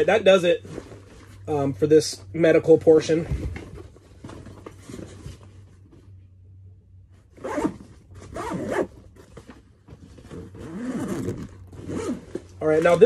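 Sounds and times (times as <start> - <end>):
backpack zipper opening: 7.4 - 9.0, 10.2 - 12.6.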